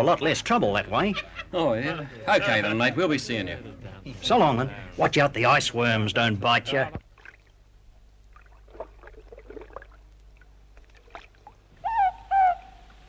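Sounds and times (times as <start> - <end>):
owl two-note call: 11.8 - 12.9.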